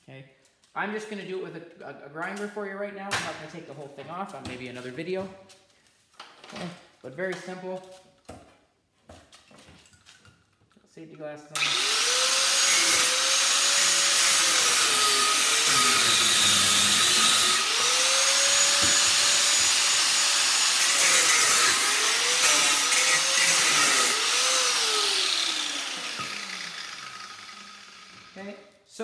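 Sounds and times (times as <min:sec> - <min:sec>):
angle grinder cutting metal: 0:11.6 - 0:28.5.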